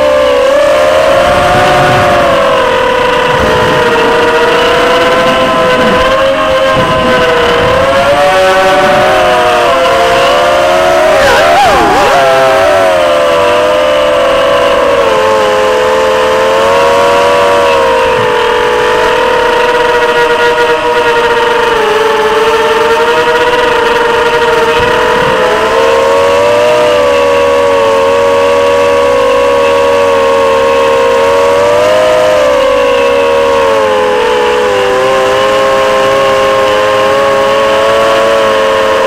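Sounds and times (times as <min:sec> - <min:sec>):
drone motors whining: 0:00.0 - 0:39.0.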